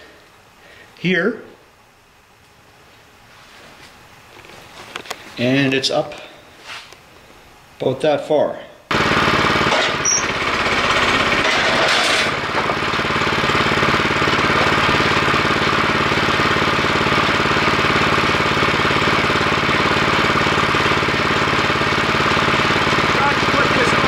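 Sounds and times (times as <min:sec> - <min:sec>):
small gasoline engine running: 0:08.9 - 0:24.0.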